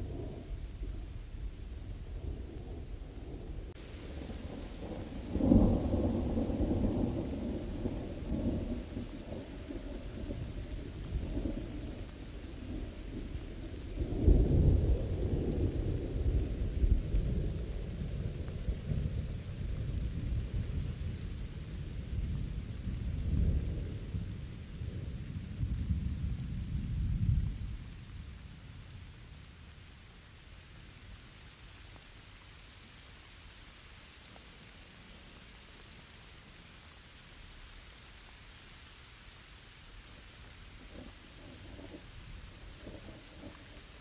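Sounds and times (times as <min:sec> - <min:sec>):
thunder rolling: 0:00.0 - 0:28.0, 0:40.8 - 0:44.0
rain hissing: 0:00.0 - 0:44.0.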